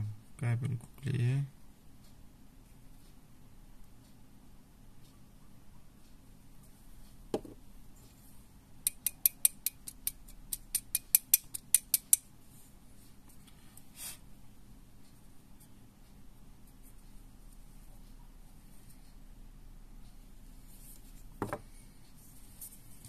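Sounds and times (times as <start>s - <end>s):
single knock: 21.4s - 21.6s.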